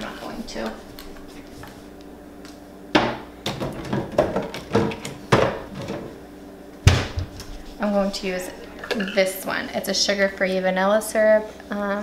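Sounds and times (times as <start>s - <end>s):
cupboard banging: 3.0s - 6.1s, 6.8s - 7.4s.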